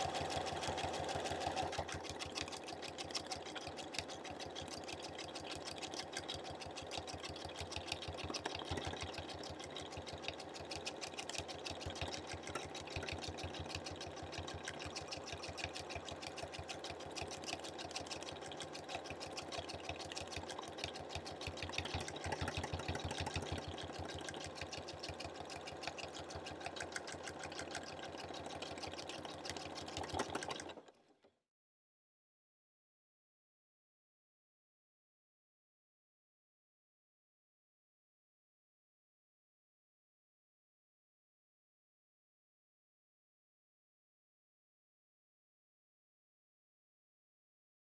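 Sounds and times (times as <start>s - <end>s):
sewing machine stitching rapidly: 0.0s - 31.2s.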